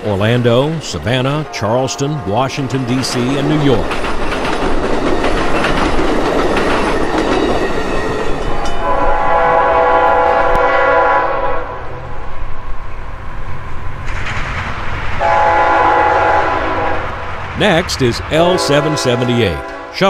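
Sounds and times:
train wheels rattling over rails: 0:00.0 - 0:10.7, 0:12.1 - 0:19.9
freight locomotive rumble: 0:00.0 - 0:20.0
diesel locomotive horn: 0:01.3 - 0:03.0, 0:08.8 - 0:12.0, 0:15.2 - 0:17.2, 0:18.5 - 0:20.0.

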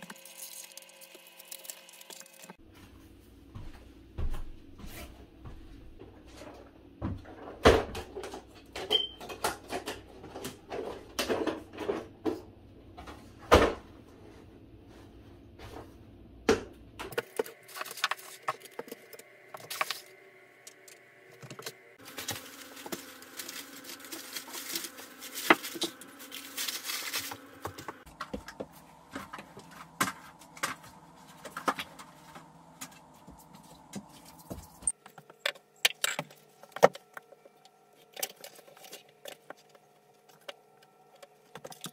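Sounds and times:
rustling: 0:22.0 - 0:28.1.

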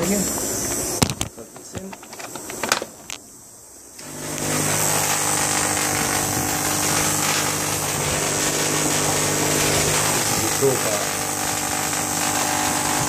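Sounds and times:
tesla coil buzzing hiss: 0:00.0 - 0:13.0
low hum: 0:03.8 - 0:13.0.

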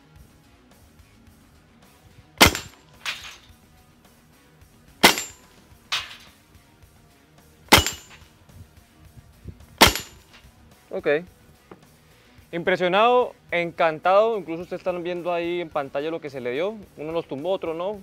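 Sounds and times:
air rifle shots cracking: 0:02.4 - 0:03.5, 0:05.0 - 0:06.3, 0:07.7 - 0:08.2, 0:09.8 - 0:10.4
pellet clanging on steel plate: 0:02.4 - 0:03.5, 0:05.0 - 0:06.3, 0:07.7 - 0:08.3, 0:09.8 - 0:10.4.

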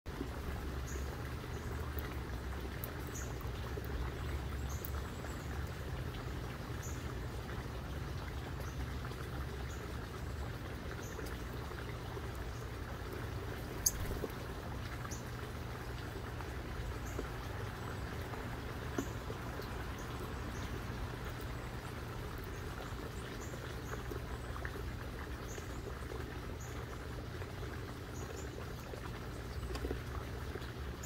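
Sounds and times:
steady rain: 0:00.2 - 0:30.2
faint high bird chirps: 0:13.8 - 0:14.2.

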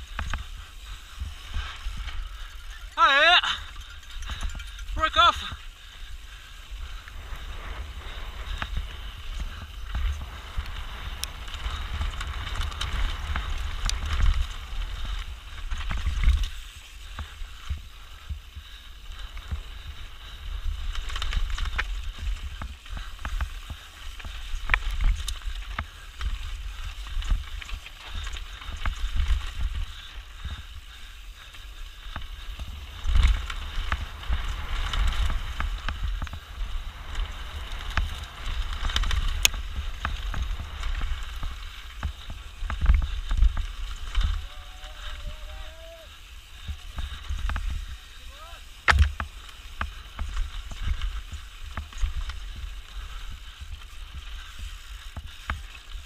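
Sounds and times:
tyres rattling over stones: 0:00.0 - 0:17.9
bike knocks and clatter: 0:48.8 - 0:52.5.

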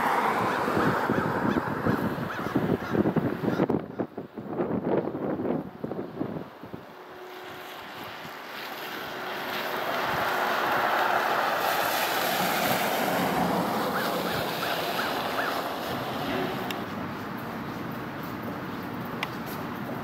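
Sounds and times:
outdoor rushing noise: 0:04.4 - 0:20.0.

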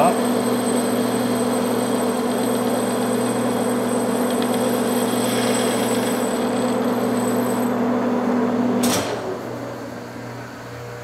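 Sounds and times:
lathe running whine: 0:00.0 - 0:11.0.

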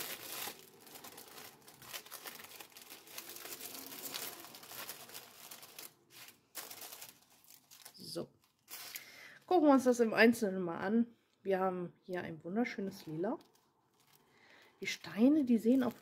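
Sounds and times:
plastic packaging crinkling: 0:00.0 - 0:09.6, 0:12.9 - 0:16.0.

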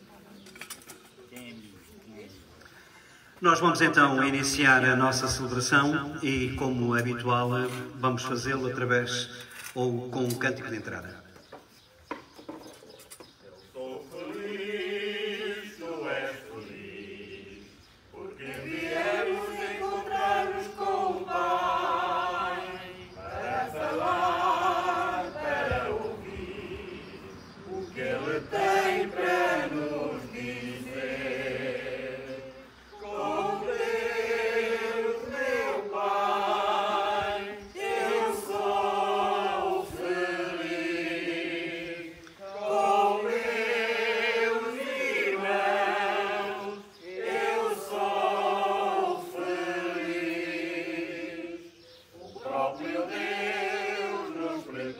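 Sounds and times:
congregation singing a hymn: 0:13.5 - 0:54.9.

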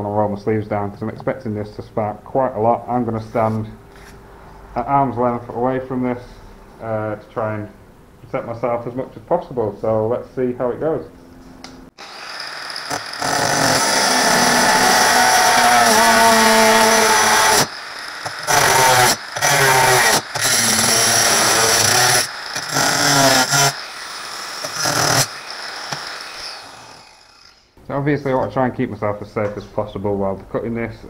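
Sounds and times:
angle grinder cutting steel: 0:12.0 - 0:27.8.

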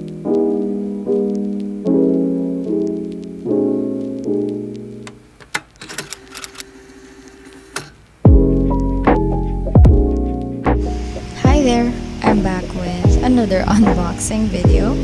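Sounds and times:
soft piano chords: 0:00.0 - 0:05.4, 0:08.3 - 0:15.0
keyboard keys clicking: 0:02.6 - 0:06.7.

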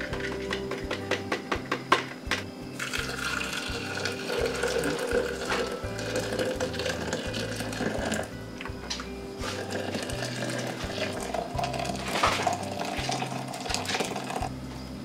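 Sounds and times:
water pouring into glass: 0:02.8 - 0:08.3, 0:09.4 - 0:14.5.

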